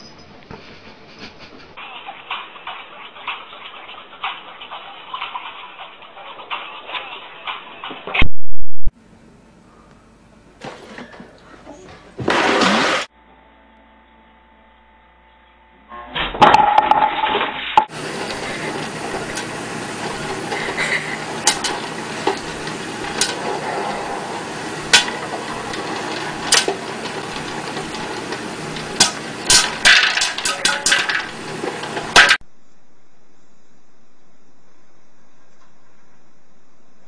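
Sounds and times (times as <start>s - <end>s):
loud clatter: 12.2s - 13.1s, 16.4s - 32.4s
popcorn popper hissing: 16.6s - 32.4s
popcorn kernels popping: 17.9s - 32.4s.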